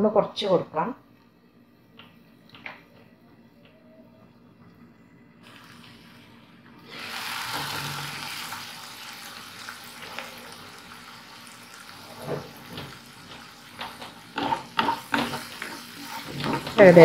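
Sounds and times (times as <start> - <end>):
onions sizzling in hot oil: 5.4 - 17.0.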